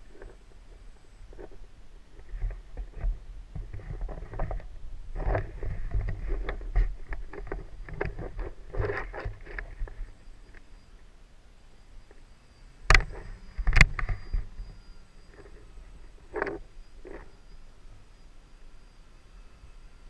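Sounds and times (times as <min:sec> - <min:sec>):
crackling and rustling: 0:00.0 - 0:10.9, 0:12.9 - 0:17.6
wind rumbling on microphone: 0:00.0 - 0:11.1, 0:12.8 - 0:18.3.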